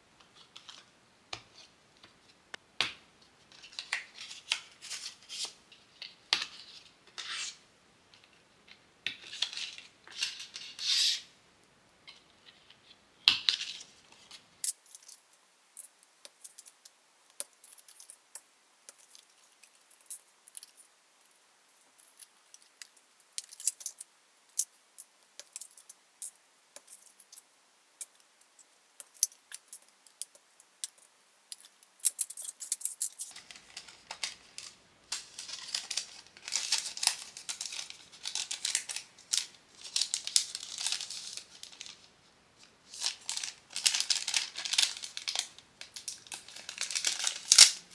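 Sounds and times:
plastic sleeve crinkling: 28.0s - 47.9s.

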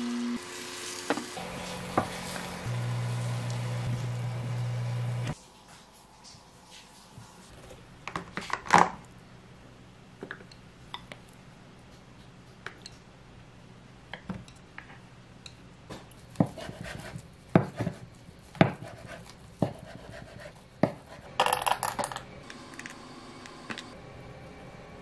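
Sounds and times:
knife chopping on wooden board: 16.4s - 21.2s.

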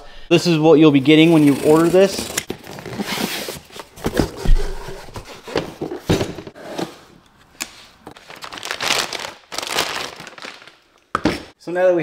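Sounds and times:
packing crinkling: 8.2s - 10.9s.

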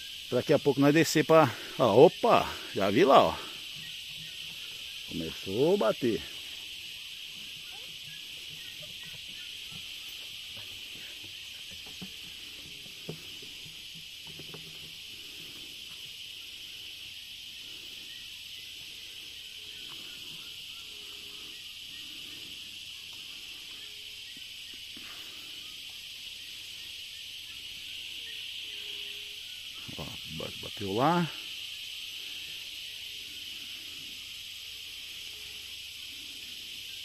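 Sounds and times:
cicadas singing: 0.0s - 37.0s.

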